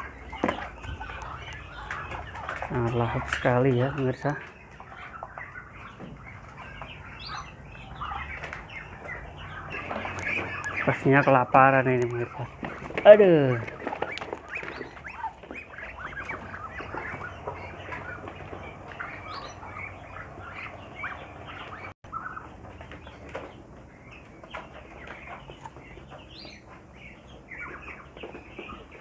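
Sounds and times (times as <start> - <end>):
duck calls: 0.0 - 22.5
duck bills pecking feed: 0.0 - 29.0.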